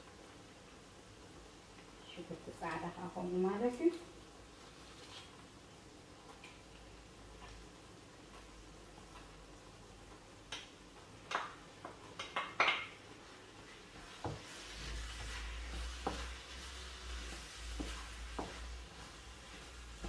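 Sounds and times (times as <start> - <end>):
faint sizzle: 0.0 - 20.0
wooden spoon knocking pan: 17.3 - 18.8.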